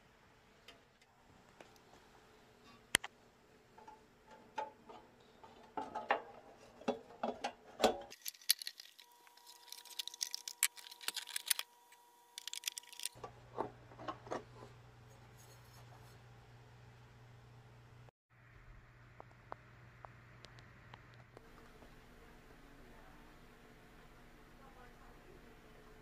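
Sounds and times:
low steady hum: 0:07.9 - 0:26.0
metallic clicks and clinks: 0:08.1 - 0:11.7.

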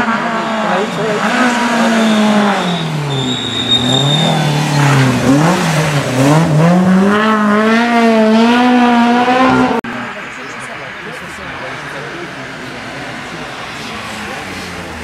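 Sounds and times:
rally car engine revving: 0:00.0 - 0:15.0
tyre squeal: 0:01.5 - 0:05.2.

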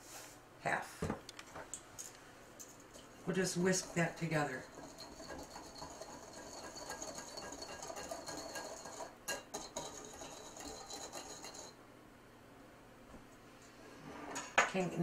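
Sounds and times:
whisk tapping: 0:03.7 - 0:11.7
whisk clicking against glass bowl: 0:04.6 - 0:11.7.

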